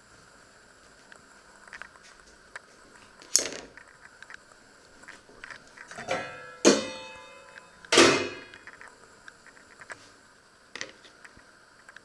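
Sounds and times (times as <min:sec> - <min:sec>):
metal tongs clanging on tray: 0:06.0 - 0:08.6.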